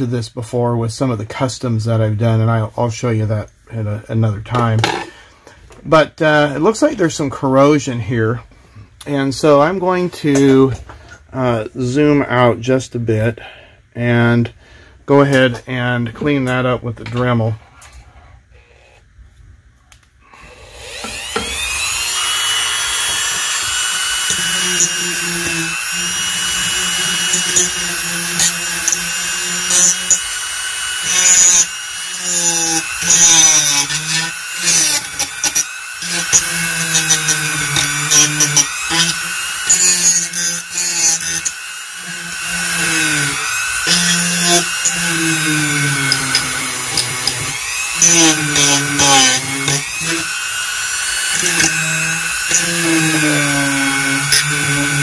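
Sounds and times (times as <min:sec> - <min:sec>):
rotary tool whining: 0:20.4 - 0:55.0.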